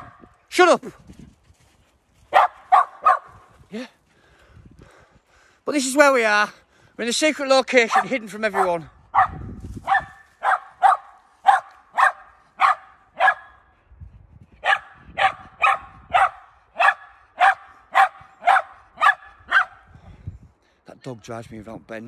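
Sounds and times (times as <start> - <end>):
dog barking: 2.3 - 3.4, 7.8 - 13.6, 14.6 - 19.9.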